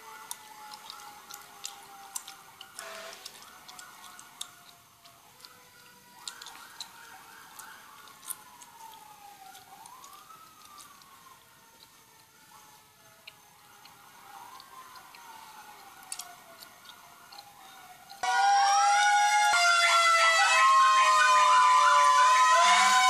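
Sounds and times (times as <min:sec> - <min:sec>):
emergency vehicle siren: 0:00.0 - 0:23.0.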